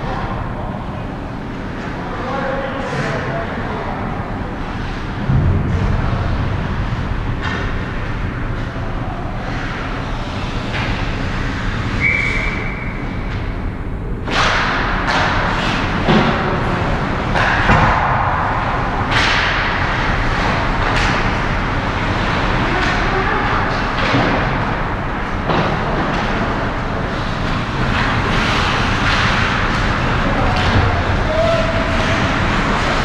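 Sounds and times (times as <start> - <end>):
steady rink hum: 0.0 - 33.0
hockey sticks and puck clacking: 6.7 - 13.5, 14.2 - 33.0.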